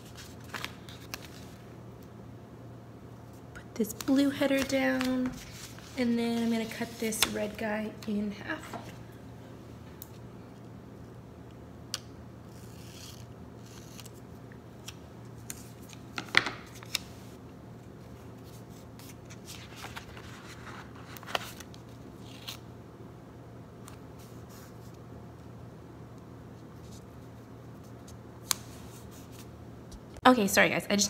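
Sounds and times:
page rustling: 0.0 - 1.7, 4.0 - 7.6, 14.8 - 17.2, 18.4 - 22.6
paper rustling: 0.0 - 1.7, 4.0 - 8.2, 18.4 - 22.6
scissors cutting paper: 12.5 - 14.2.

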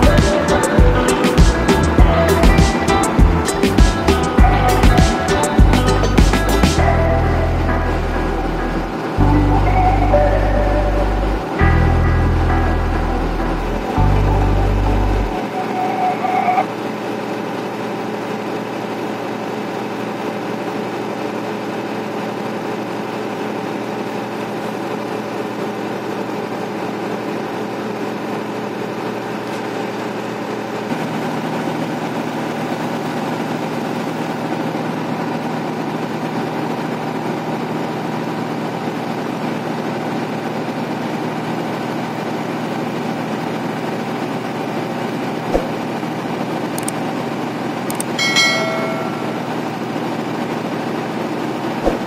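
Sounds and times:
diesel truck engine running: 0.0 - 20.1
sharp click: 47.9 - 48.2.

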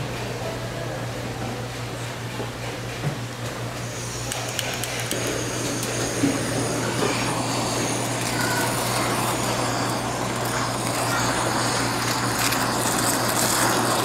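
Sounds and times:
blowtorch flame hissing: 3.5 - 14.0.

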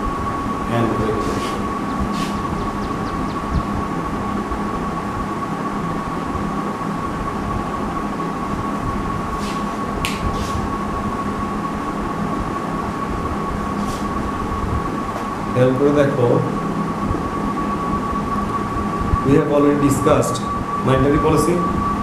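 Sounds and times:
high-pitched whine: 0.0 - 22.0
low drone: 0.0 - 22.0
mechanical hum: 0.0 - 22.0
marker squeaking on whiteboard: 10.3 - 10.6.

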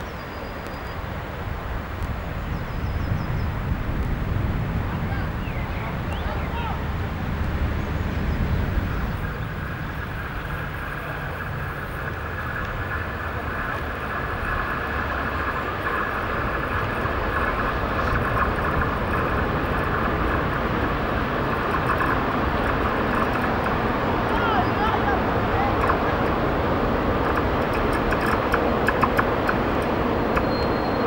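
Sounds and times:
train rumbling on rails: 0.0 - 31.0
hissing wheel and rail noise: 3.6 - 31.0.

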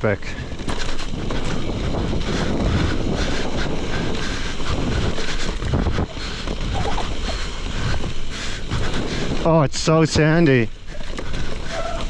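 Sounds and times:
bike tyres rumbling on dirt: 0.0 - 12.0
wind buffeting microphone: 0.0 - 12.0
bike knocking over bumps: 0.5 - 3.2.

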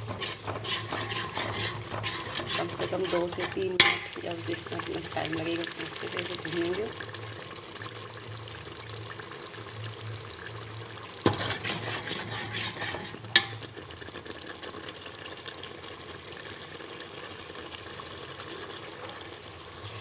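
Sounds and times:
spoon scraping metal pot: 0.0 - 4.4, 11.3 - 13.7
faint frying sizzle: 0.0 - 20.0
spoon clinking on pot: 0.2 - 4.2, 13.4 - 13.6.

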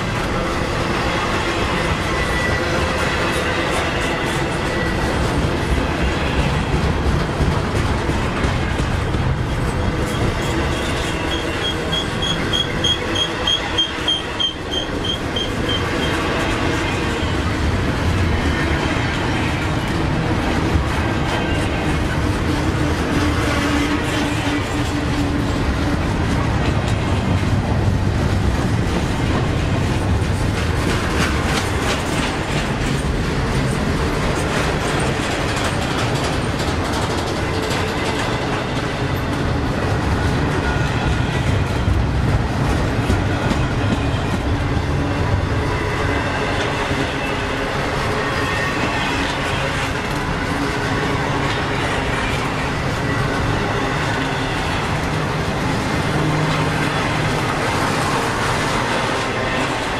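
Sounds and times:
train wheels rumbling on rail: 0.0 - 59.9
wheels clacking over rail joints: 2.2 - 45.4.

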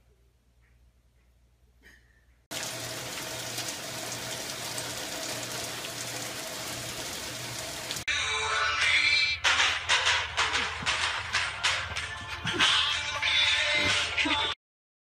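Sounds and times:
rain on a wooden deck: 2.5 - 8.1.

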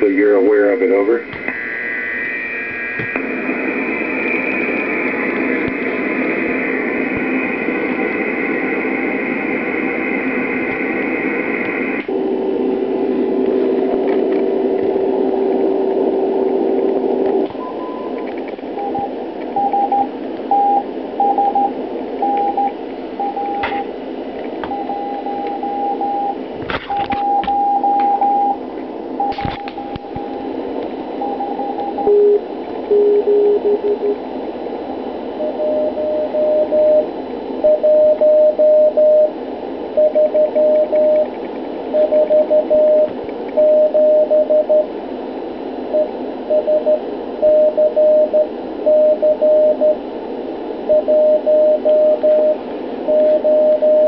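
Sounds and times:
radio static hiss: 0.0 - 54.0
static crackles: 0.0 - 54.0
steady carrier tone: 0.0 - 54.0
morse code beeps: 17.6 - 23.8, 24.7 - 28.6, 29.2 - 30.5, 31.2 - 34.2, 35.4 - 39.3, 40.0 - 41.3, 41.9 - 44.9, 45.9 - 50.0, 50.9 - 54.0.

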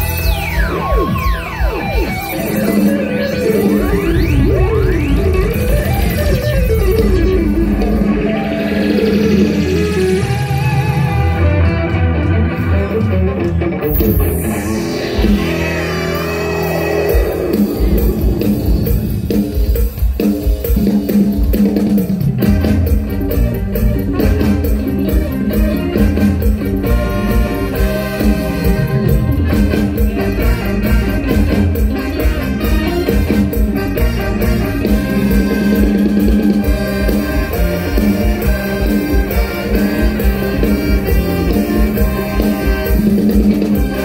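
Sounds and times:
downward pitch sweep: 0.0 - 12.0, 13.8 - 19.4
drums beating: 0.0 - 44.0
live band music: 0.0 - 44.0.

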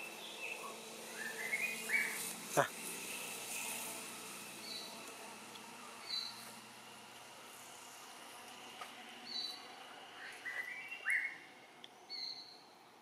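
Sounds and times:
birds chirping: 0.0 - 3.4, 4.6 - 5.1, 5.8 - 6.6, 9.2 - 12.7
rising whistled bird notes: 0.4 - 2.3, 10.2 - 11.4.

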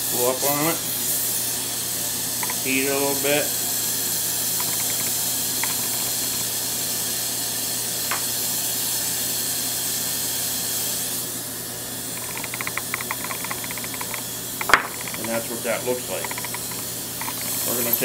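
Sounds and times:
torch flame hissing: 0.0 - 18.0
faint rapid ticking: 4.6 - 6.4, 12.2 - 15.4, 16.2 - 17.5.

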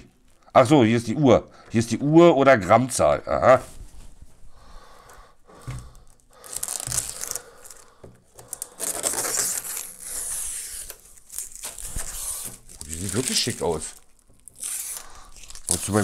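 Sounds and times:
plastic film being peeled off: 6.1 - 16.0.

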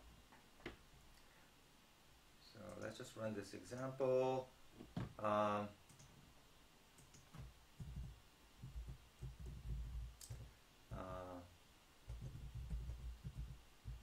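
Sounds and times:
keyboard typing: 7.0 - 10.5, 12.1 - 14.0.

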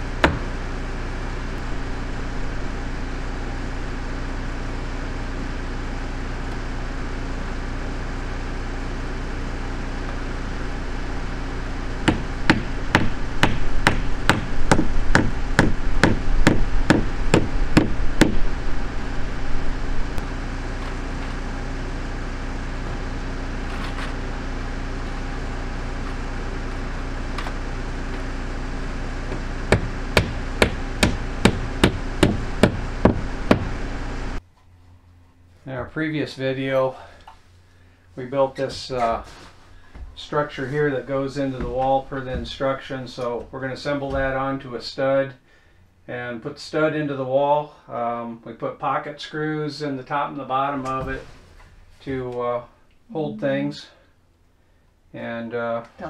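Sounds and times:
steady low hum: 0.0 - 56.0
hammer driving nails into wood: 29.7 - 33.7.

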